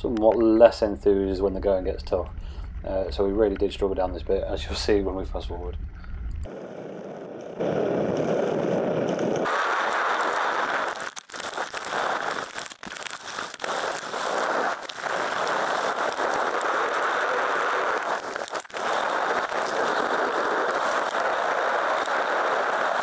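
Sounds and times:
wind rushing over microphone: 6.4s - 10.9s
bike tyres on muddy trail: 6.5s - 23.0s.

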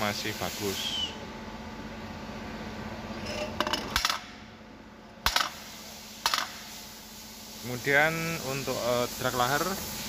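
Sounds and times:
low steady hum: 1.0s - 6.0s.

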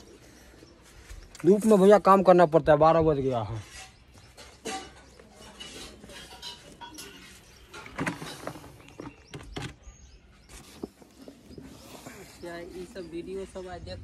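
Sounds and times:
steel bowl scraping metal bucket: 3.6s - 9.2s.

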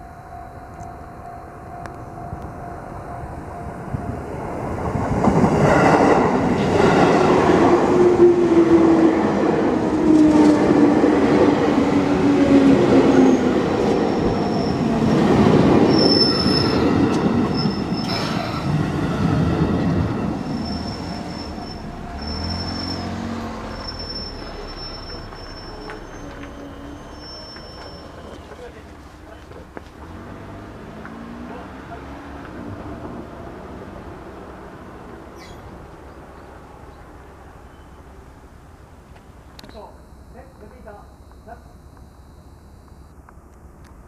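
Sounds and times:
train running noise: 0.0s - 30.2s
high wheel squeals: 12.9s - 15.1s, 15.8s - 19.3s, 20.0s - 29.4s, 35.4s - 35.7s, 37.6s - 38.2s.

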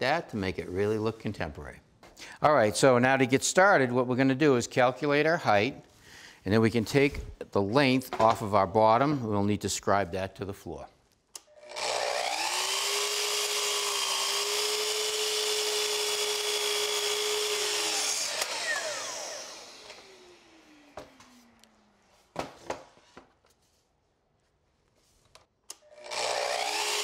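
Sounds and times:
miter saw cutting wood: 11.6s - 21.6s, 25.8s - 27.0s
saw motor winding down: 11.6s - 21.6s, 25.8s - 27.0s.

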